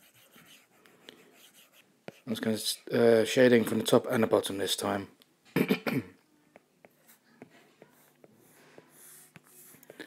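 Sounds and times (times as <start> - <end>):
stylus brushing stroke: 0.0 - 3.0.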